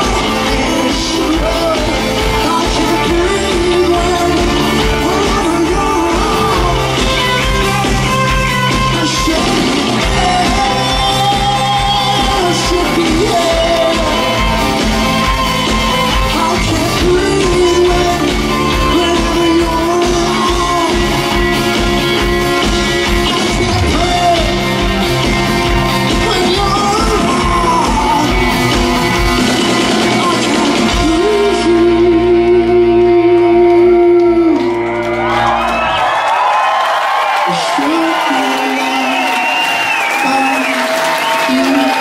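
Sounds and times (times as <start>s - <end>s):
drum beat: 0.0s - 31.5s
lead vocals: 0.0s - 42.0s
live rock band: 0.0s - 42.0s.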